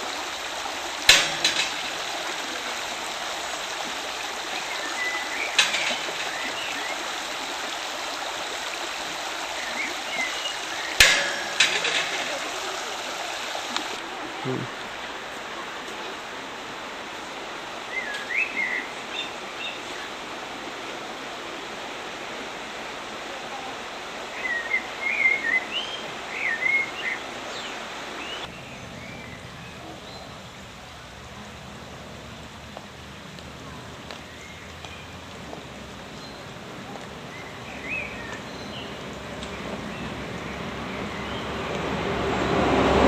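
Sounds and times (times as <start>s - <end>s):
songbird chirping: 0.0s - 14.7s, 17.8s - 20.2s, 32.3s - 41.9s
stream rushing over stones: 0.0s - 43.0s.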